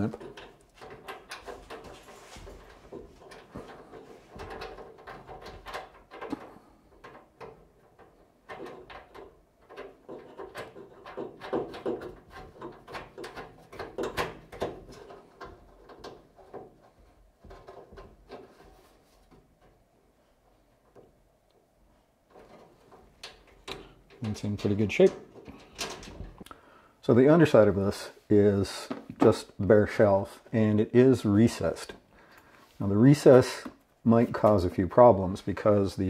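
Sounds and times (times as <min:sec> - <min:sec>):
clicks and taps on sheet metal: 0:00.0 - 0:18.7
wires rustling: 0:00.0 - 0:36.0.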